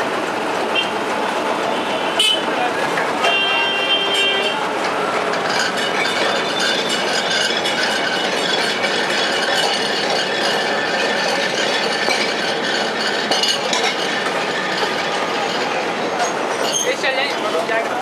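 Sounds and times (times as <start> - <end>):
city traffic: 0.0 - 18.0
tram rattling and clanking: 0.0 - 18.0.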